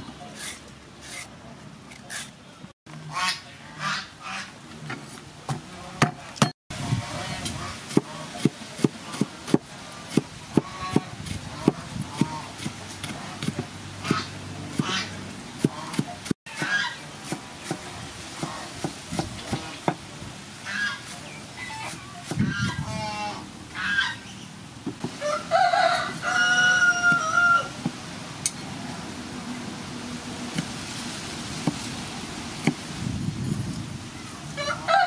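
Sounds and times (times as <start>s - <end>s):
rooster crowing: 25.2s - 27.8s, 34.6s - 35.0s.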